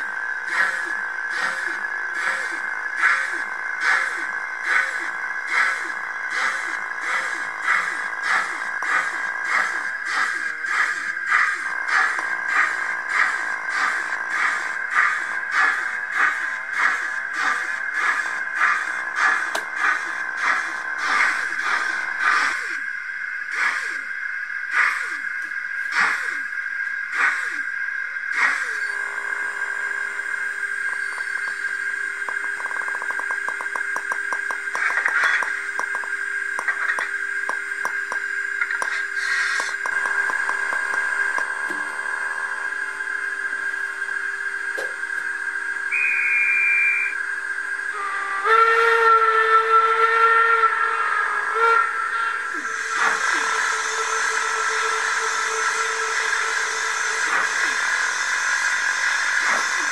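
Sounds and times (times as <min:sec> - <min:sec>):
model locomotive steam chuffs: 0:00.0 - 0:59.9
steady hiss: 0:28.3 - 0:47.2, 0:50.0 - 0:59.9
model train whistle: 0:45.9 - 0:58.5.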